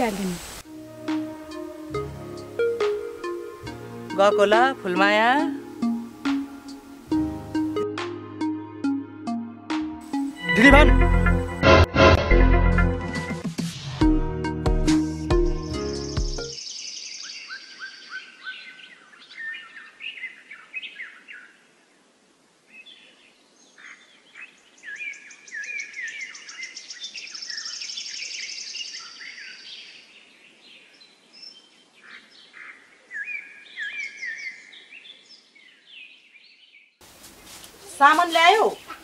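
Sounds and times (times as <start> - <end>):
faint steady hiss: 0.0 - 7.8, 10.0 - 10.7, 18.4 - 33.8, 37.0 - 39.0
birds chirping and trilling: 15.5 - 22.1, 22.7 - 39.0.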